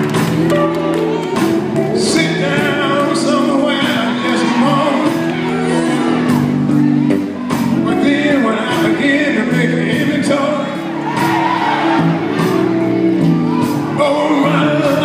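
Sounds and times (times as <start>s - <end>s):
drums steady beat: 0.0s - 15.0s
men singing gospel with band: 1.4s - 6.8s, 7.8s - 12.8s, 13.7s - 15.0s.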